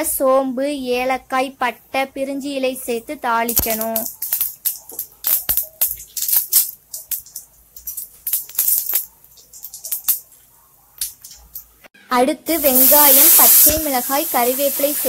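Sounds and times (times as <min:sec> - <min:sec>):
spices popping in hot oil: 0:03.4 - 0:11.8, 0:12.5 - 0:15.0.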